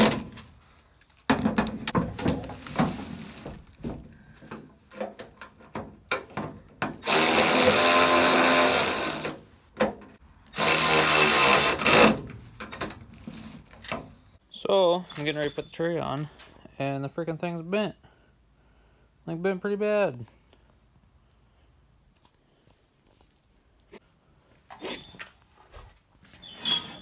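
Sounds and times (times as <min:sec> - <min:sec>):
cordless electric ratchet running: 0:07.0 - 0:09.3, 0:10.6 - 0:12.1.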